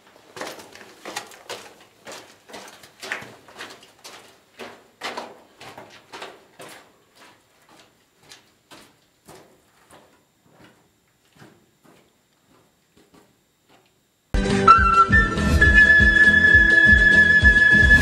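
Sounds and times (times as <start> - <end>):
footsteps on rocky floor: 0.0 - 14.0.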